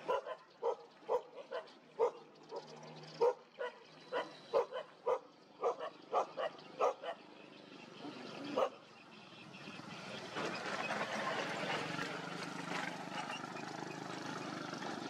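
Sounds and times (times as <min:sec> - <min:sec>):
dogs barking: 0:00.0 - 0:07.4, 0:08.4 - 0:08.9.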